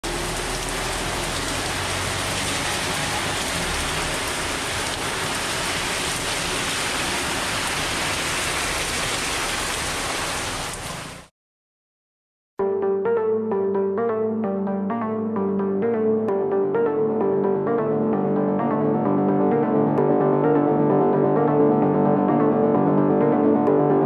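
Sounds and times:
rain on wet pavement: 0.0 - 11.3.

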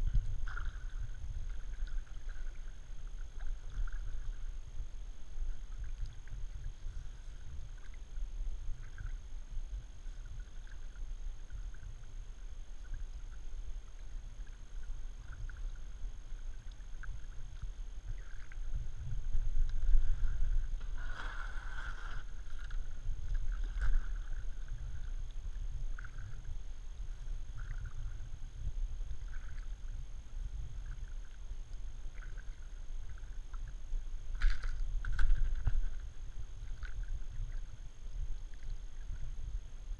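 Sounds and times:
low rumble: 0.0 - 39.9
paddle swish: 19.8 - 24.5.

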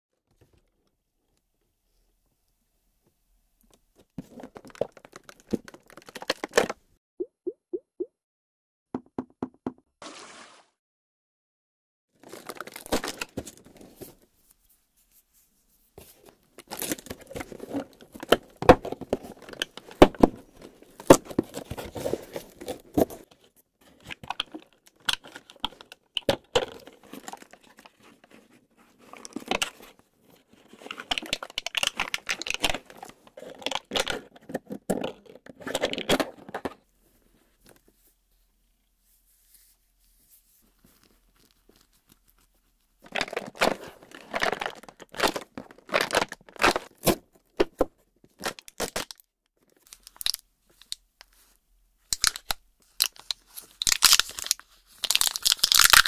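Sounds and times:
plastic wrap crinkling: 4.3 - 6.7, 12.2 - 13.8, 52.2 - 56.0.

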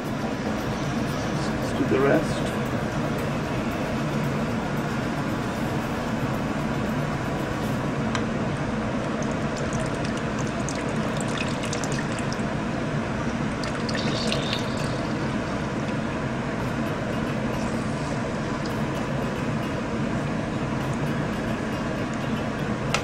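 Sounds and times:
steady low hum: 0.0 - 23.0
juice dripping and trickling: 9.0 - 16.0
juice crackling in hot fat: 9.1 - 12.5, 13.6 - 15.3.

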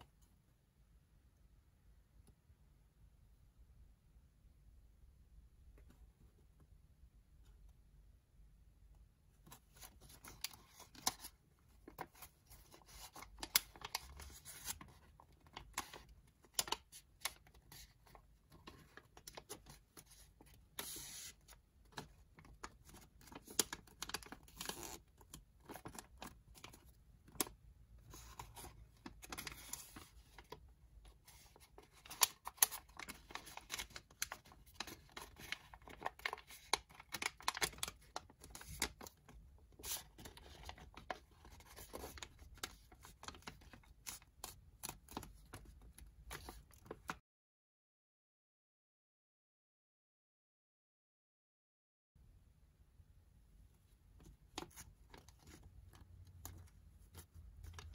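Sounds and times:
paper rustling and crinkling: 9.5 - 47.2, 54.2 - 57.9.

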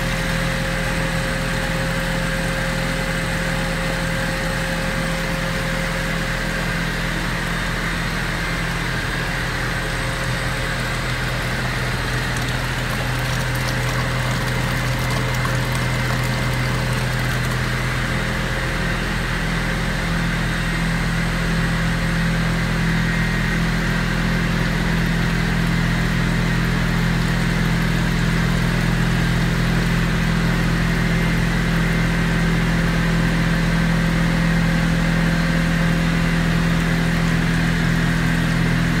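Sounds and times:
machine motor humming: 9.8 - 19.1.

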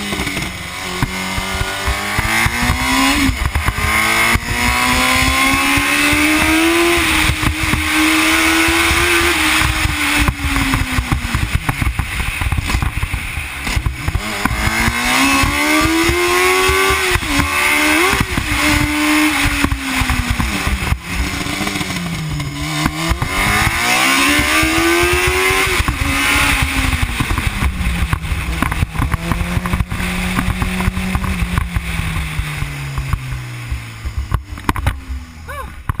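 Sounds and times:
racing engine revving: 0.0 - 12.9, 13.6 - 35.6.

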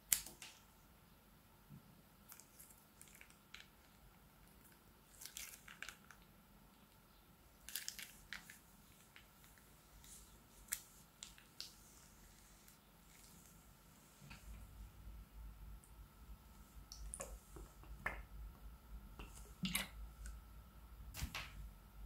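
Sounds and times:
slime squishing and crackling: 2.3 - 6.3, 7.6 - 13.6.

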